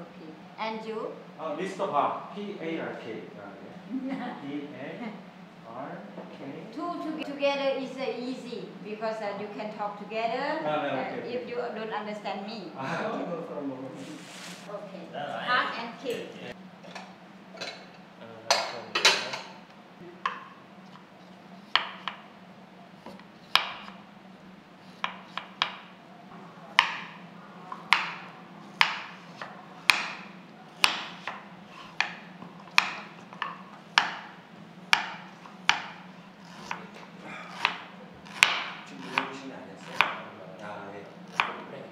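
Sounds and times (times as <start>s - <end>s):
knife chopping on wooden board: 21.6s - 22.3s, 23.0s - 24.0s, 24.8s - 25.9s, 26.7s - 40.2s, 41.3s - 41.7s.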